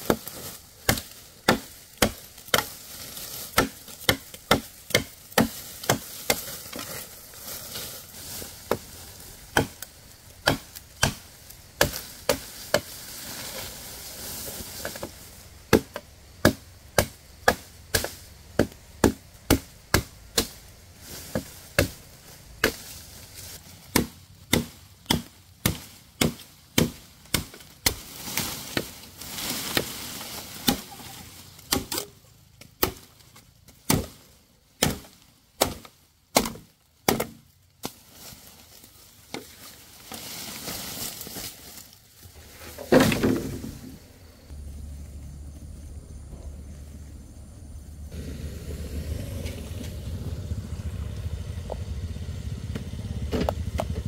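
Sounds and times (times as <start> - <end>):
faint hiss: 6.7 - 19.0
blade chopping: 9.5 - 11.2, 23.9 - 28.1.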